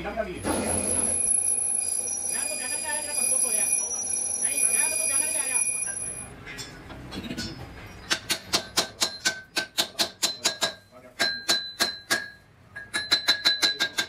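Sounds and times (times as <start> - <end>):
hammer tapping metal hub: 8.1 - 14.0.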